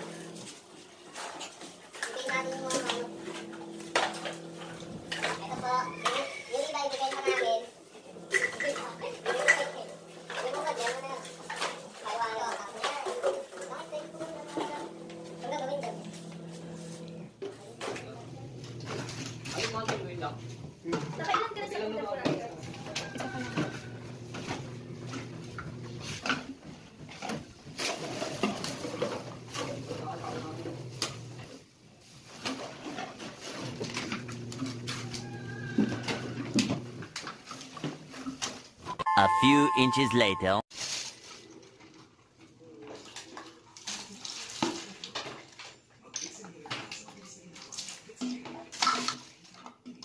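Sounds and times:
water splashing and sloshing: 0.0s - 15.4s, 17.5s - 38.8s, 40.8s - 45.8s
plastic bottles clattering: 1.2s - 15.3s, 17.4s - 31.3s, 48.1s - 50.0s.

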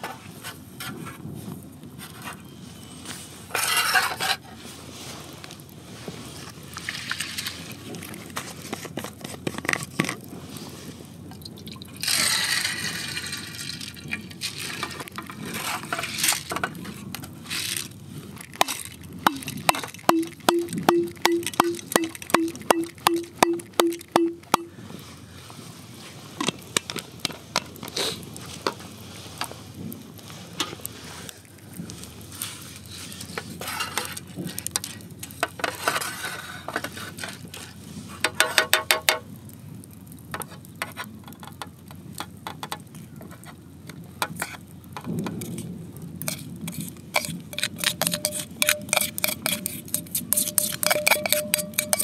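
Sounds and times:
rice poured into metal tin: 6.8s - 9.8s, 11.4s - 24.7s, 45.3s - 52.0s.

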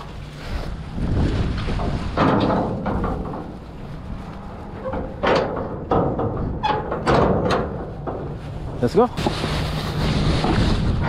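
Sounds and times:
metal door clanking: 1.8s - 3.6s, 4.7s - 8.9s
bar latch clanks: 4.8s - 7.9s.

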